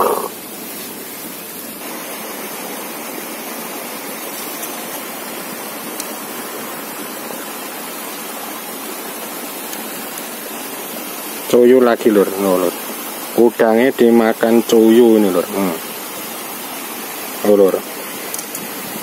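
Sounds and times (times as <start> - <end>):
running water: 0.0 - 19.0
faint clicks: 5.9 - 6.2.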